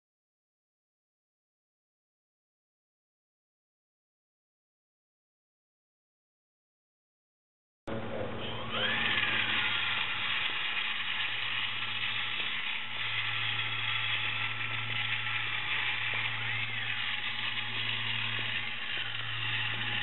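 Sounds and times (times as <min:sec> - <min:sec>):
small electric motor whining: 0:07.9 - 0:20.0.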